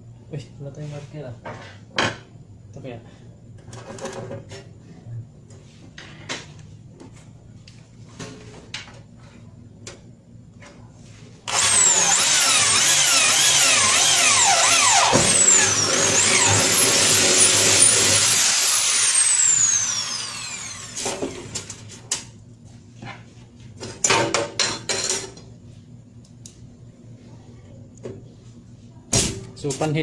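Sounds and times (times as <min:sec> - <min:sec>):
power drill running: 0:11.5 - 0:21.5.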